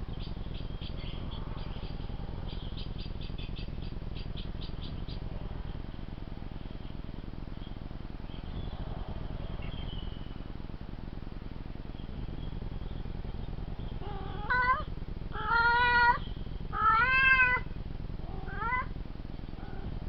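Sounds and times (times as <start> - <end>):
cat meowing: 14.0 - 16.2, 16.8 - 17.7, 18.3 - 18.9.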